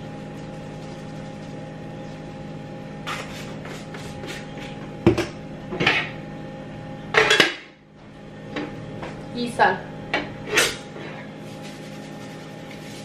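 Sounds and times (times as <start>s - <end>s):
seasoning shaker rattling: 0.0s - 1.6s, 11.4s - 13.0s
steady low hum: 0.0s - 13.0s
kitchenware clattering: 7.1s - 7.7s.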